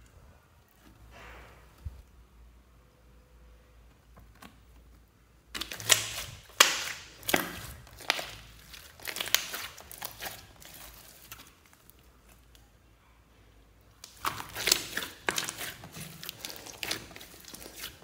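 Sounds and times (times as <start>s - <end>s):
slime squishing with wet crackles: 4.0s - 13.0s, 13.7s - 18.0s.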